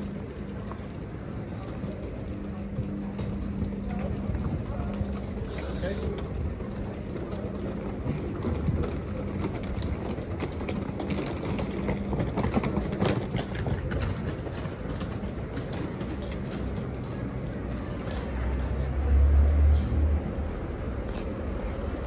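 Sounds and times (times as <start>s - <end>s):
faint voices: 0.0s - 22.0s.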